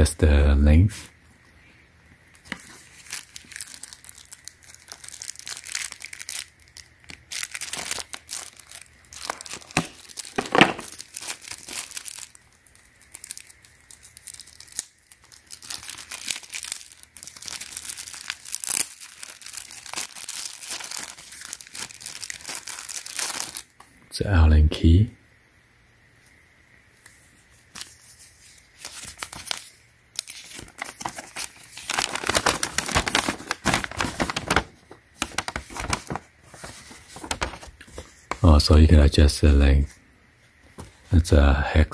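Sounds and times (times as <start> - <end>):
plastic packet crinkling: 2.4 - 23.8, 27.6 - 38.5.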